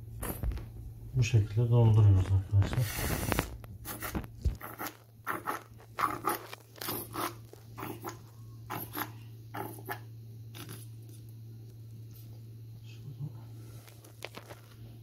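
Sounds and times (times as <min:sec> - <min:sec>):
steady low hum: 0:00.0 - 0:15.0
plastic bottle squeezing and scraping: 0:02.6 - 0:07.7, 0:13.8 - 0:14.8.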